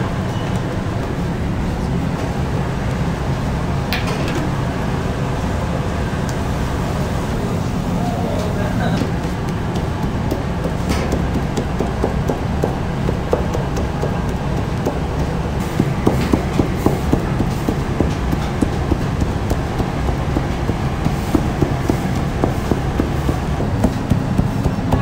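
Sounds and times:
dough comb tapping and scraping: 0:09.0 - 0:25.0.

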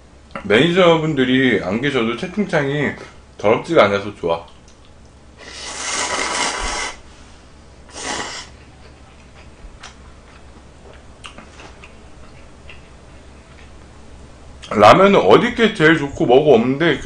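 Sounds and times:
person slurping noodles: 0:05.4 - 0:07.0, 0:07.9 - 0:08.6.

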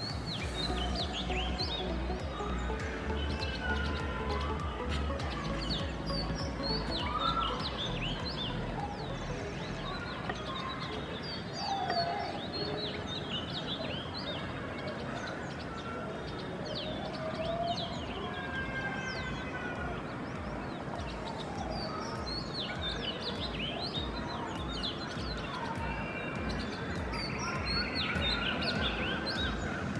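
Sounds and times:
small birds chirping: 0:00.0 - 0:29.9
steady background noise: 0:00.0 - 0:29.9.

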